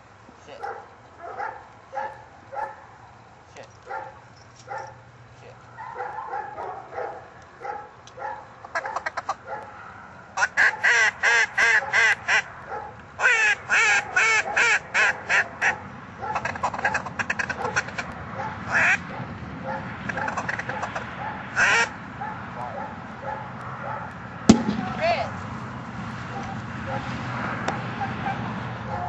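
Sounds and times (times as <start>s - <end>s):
duck call quacks: 8.7s - 9.4s, 10.4s - 12.5s, 13.2s - 19.1s, 20.0s - 22.0s.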